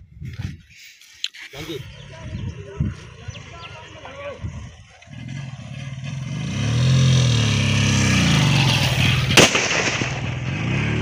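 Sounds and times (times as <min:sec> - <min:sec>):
motorcycle engine running: 0:01.9 - 0:09.4
firework bang: 0:09.2 - 0:10.4.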